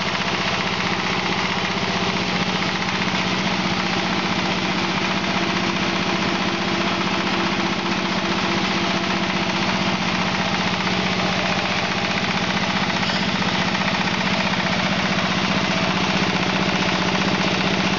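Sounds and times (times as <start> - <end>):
diesel engine beat: 0.0 - 17.9
hammer mill grinding rush: 0.0 - 17.9.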